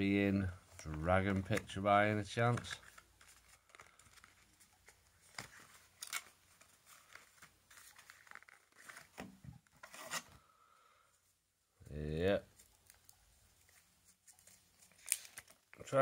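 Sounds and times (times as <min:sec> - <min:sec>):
plastic blister pack crinkling: 0:00.7 - 0:09.2, 0:12.5 - 0:16.0.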